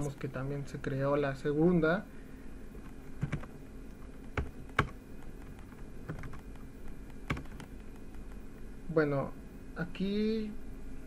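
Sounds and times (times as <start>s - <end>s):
keyboard keystrokes: 2.8s - 8.4s.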